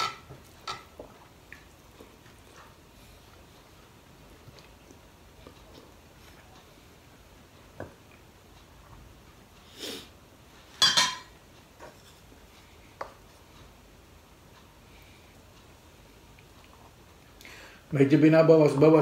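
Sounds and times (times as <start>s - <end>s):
dishes clicking: 10.8s - 11.3s
metal lid clattering: 10.8s - 11.3s.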